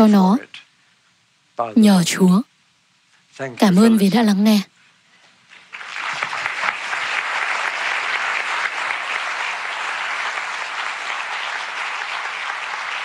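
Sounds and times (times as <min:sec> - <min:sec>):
large audience applauding: 0:05.6 - 0:13.0.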